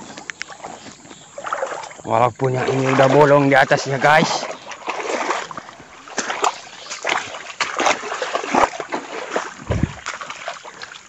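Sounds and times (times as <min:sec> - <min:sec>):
people wading through water: 0:00.0 - 0:11.0
short low thud: 0:09.6 - 0:10.2.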